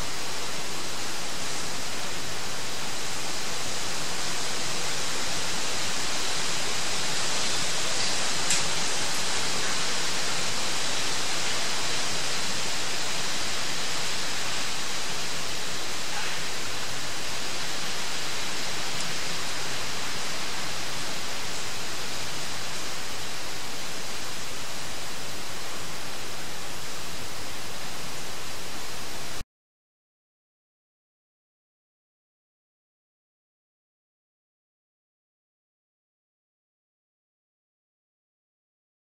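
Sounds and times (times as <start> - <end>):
microphone and recorder hiss: 0.0 - 29.4.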